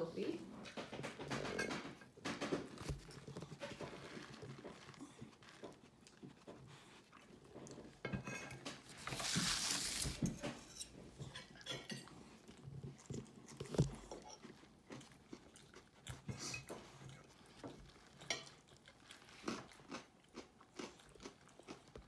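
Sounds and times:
cutlery clinking on ceramic plate: 10.4s - 12.1s.

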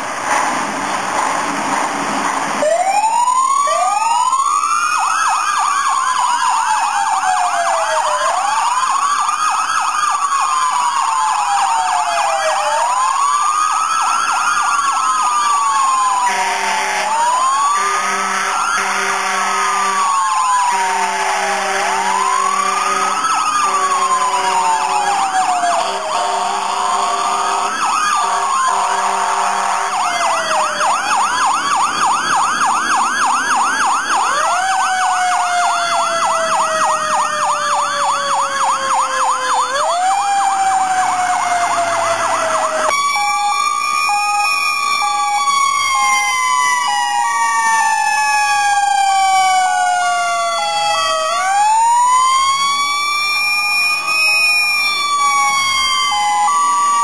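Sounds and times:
fire truck siren wailing: 0.0s - 57.0s
air horn blasts: 16.2s - 17.1s, 17.8s - 20.1s, 20.7s - 25.0s, 25.9s - 30.2s.

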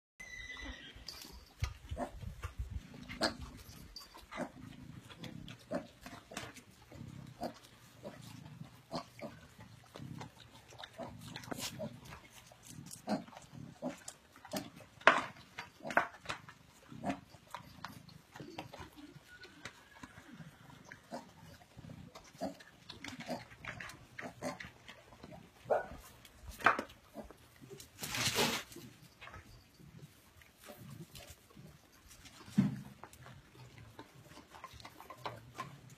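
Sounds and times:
chewing clicks and crunches: 1.6s - 20.1s, 20.9s - 27.9s, 30.0s - 35.9s
pig grunting: 1.9s - 15.0s, 15.8s - 19.0s, 20.5s - 26.0s.

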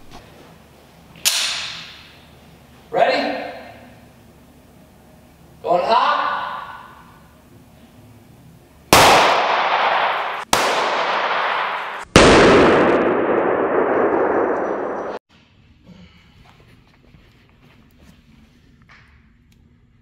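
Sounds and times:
handgun gunshots echoing: 1.2s - 2.0s, 9.0s - 15.0s.

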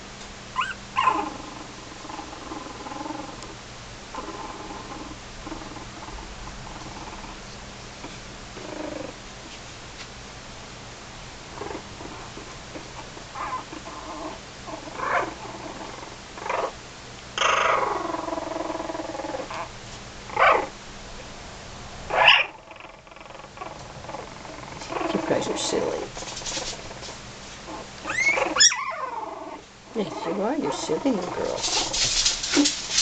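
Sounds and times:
puppies squeaking and whining: 0.6s - 1.4s, 13.0s - 16.8s, 17.4s - 19.7s, 22.1s - 33.0s.

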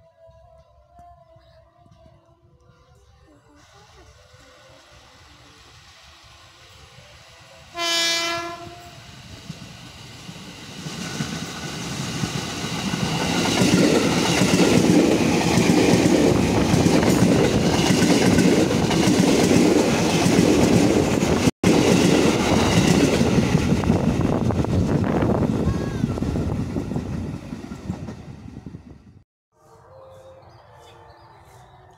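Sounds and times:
train horn blast: 7.7s - 9.1s
train wheels rumbling on rails: 8.4s - 29.2s.

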